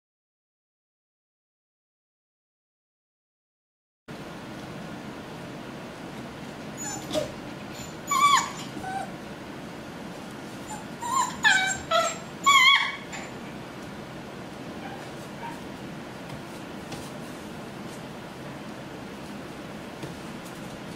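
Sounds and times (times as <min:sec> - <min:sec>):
puppies whimpering and yipping: 0:06.8 - 0:09.2, 0:10.6 - 0:13.4.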